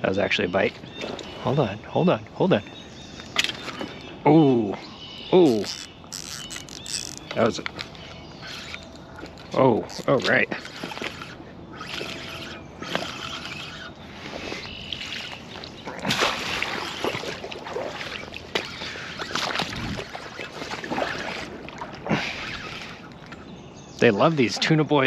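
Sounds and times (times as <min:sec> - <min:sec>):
fish splashing in shallow water: 0:05.6 - 0:23.5.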